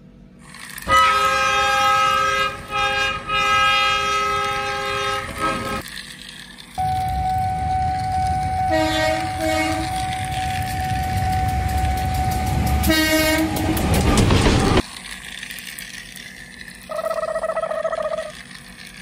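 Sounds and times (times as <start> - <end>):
train rumble: 0.6 - 15.1
train horn toots: 0.8 - 5.8, 6.8 - 14.2.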